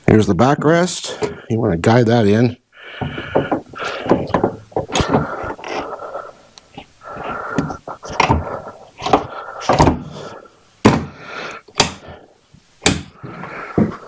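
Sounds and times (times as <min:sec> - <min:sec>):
sharp knocks: 0:03.0 - 0:05.3, 0:10.8 - 0:11.2, 0:11.8 - 0:12.0, 0:12.8 - 0:13.2.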